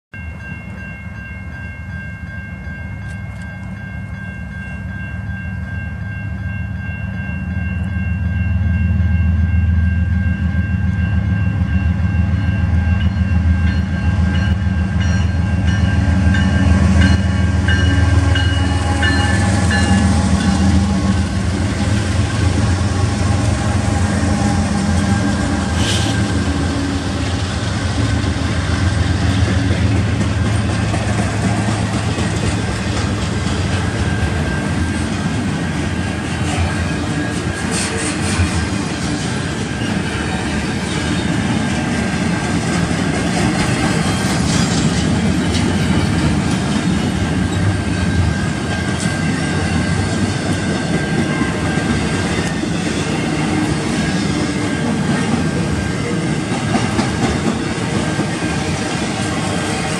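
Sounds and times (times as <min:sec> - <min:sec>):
rail and wheel noise: 0:00.1 - 0:59.9
diesel locomotive rumble: 0:00.4 - 0:59.9
train horn chord: 0:10.9 - 0:30.6.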